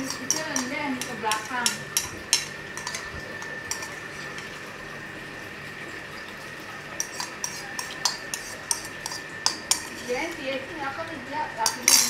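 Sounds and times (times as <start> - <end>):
metal spoon scraping a bowl: 0.0 - 4.5, 7.0 - 10.5, 11.6 - 12.0.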